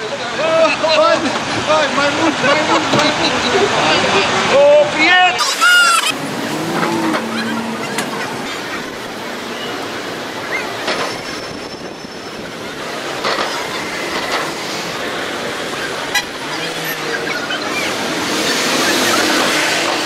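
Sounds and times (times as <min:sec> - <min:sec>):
passing cars: 0:00.0 - 0:20.0
car horns tooting: 0:16.0 - 0:17.0, 0:18.6 - 0:20.0.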